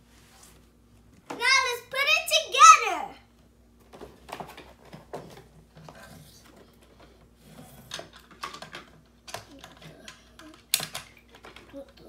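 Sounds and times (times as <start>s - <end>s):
plastic toy parts clicking and clattering: 7.9s - 12.0s.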